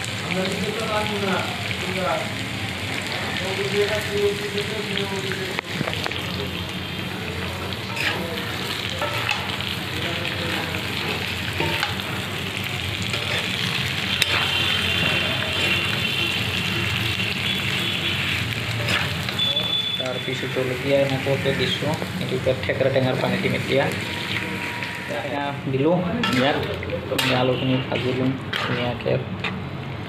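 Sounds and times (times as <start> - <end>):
potatoes sizzling in a pan: 0.0 - 30.0
spoon scraping and knocking pan: 11.1 - 12.2, 13.1 - 15.8, 26.2 - 29.6.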